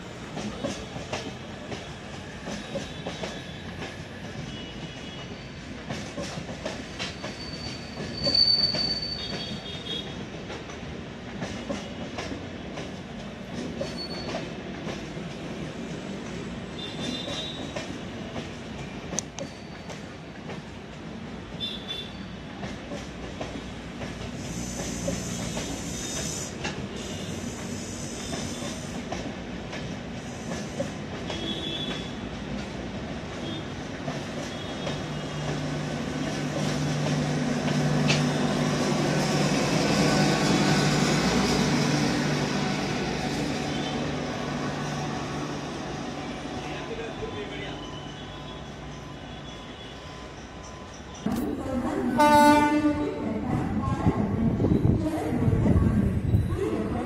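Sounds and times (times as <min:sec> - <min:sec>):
train wheels clacking on rail joints: 0:00.2 - 0:05.2, 0:05.8 - 0:15.5, 0:16.8 - 0:20.8, 0:22.5 - 0:42.7
high wheel squeals: 0:07.1 - 0:09.7, 0:13.8 - 0:14.4, 0:19.4 - 0:20.1, 0:47.3 - 0:51.2.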